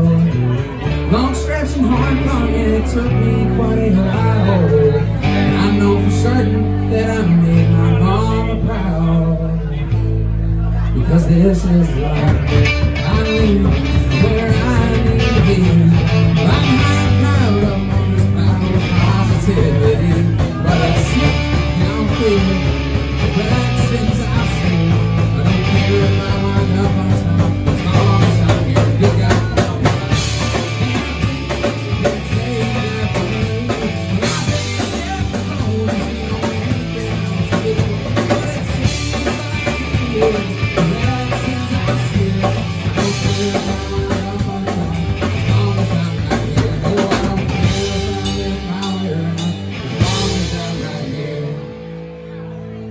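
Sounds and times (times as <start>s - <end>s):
acoustic guitar: 0.0s - 52.9s
electric bass: 0.0s - 52.9s
electric guitar: 0.0s - 52.9s
man singing: 0.0s - 52.9s
drum kit: 12.2s - 51.4s.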